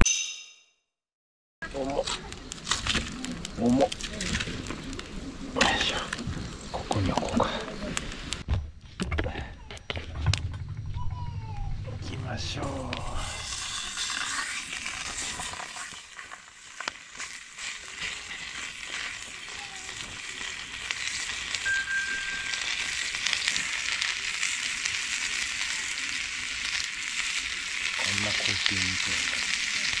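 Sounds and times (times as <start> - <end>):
campfire crackles: 1.6 - 8.5, 12.0 - 30.0
steak sizzling in a pan: 13.0 - 30.0.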